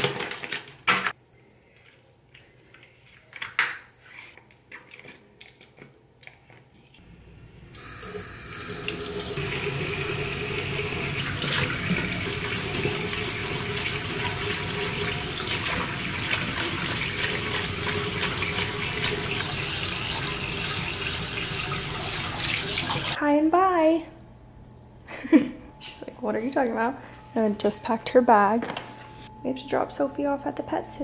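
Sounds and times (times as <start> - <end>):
water running into basin: 7.8 - 23.2.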